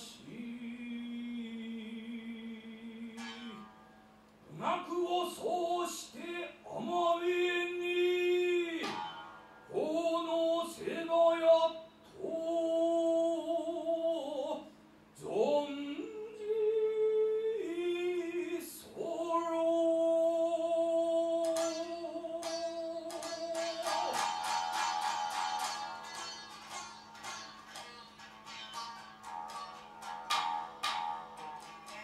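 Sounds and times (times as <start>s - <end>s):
lute plectrum strikes: 3.1s - 4.1s, 8.7s - 9.6s, 21.4s - 32.0s
person singing long sliding notes: 4.5s - 28.1s.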